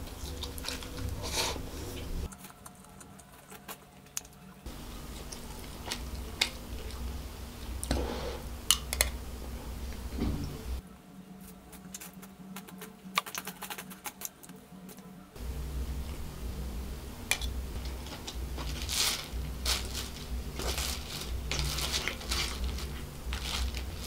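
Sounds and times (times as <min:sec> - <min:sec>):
person chewing food: 0:00.0 - 0:08.0.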